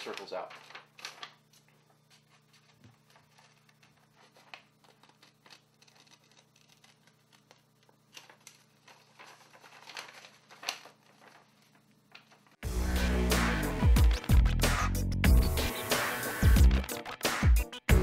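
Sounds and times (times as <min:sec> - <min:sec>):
faint low hum: 0:00.0 - 0:12.6
paper rustling: 0:00.0 - 0:12.6
scissors snipping paper: 0:03.1 - 0:11.4.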